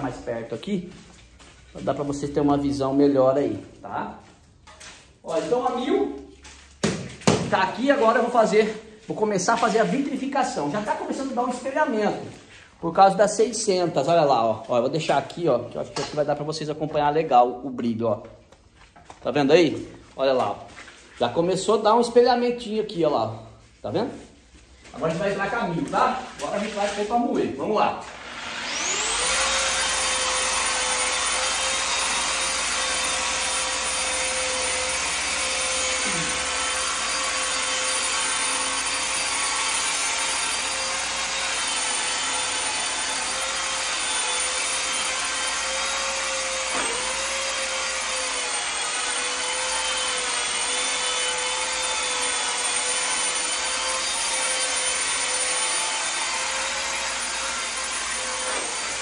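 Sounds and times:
electric polisher sanding: 0:25.0 - 0:59.0.

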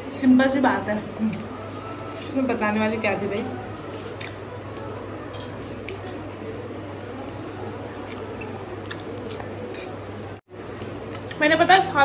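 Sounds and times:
noodles slurped and chewed: 0:05.6 - 0:10.0.

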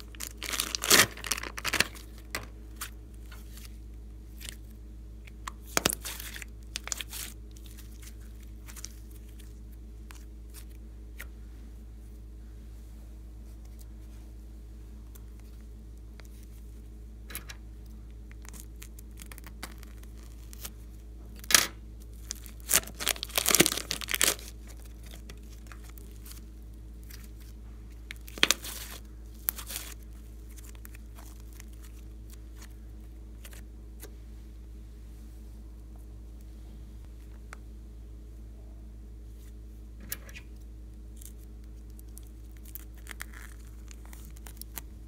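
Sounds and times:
plastic bag crinkling and tearing: 0:00.0 - 0:03.8, 0:05.6 - 0:10.7, 0:21.4 - 0:32.7, 0:41.1 - 0:45.0.

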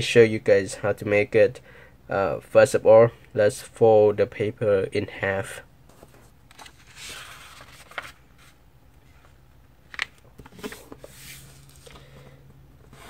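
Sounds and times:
paper rustling and sliding: 0:05.9 - 0:12.1.

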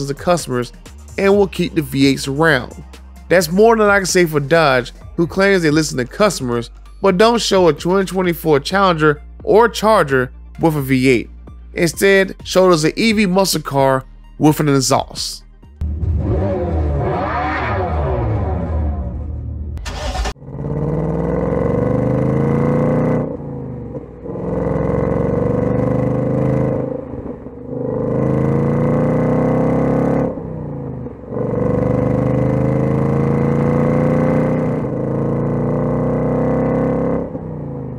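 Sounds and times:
car engine accelerating hard: 0:15.8 - 0:37.9.

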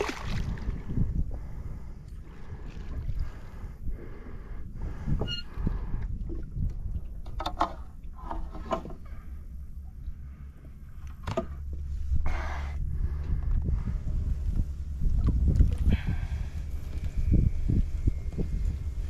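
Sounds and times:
fish splashing at water surface: 0:00.0 - 0:00.6
wind on microphone: 0:00.0 - 0:09.2, 0:11.7 - 0:19.0.

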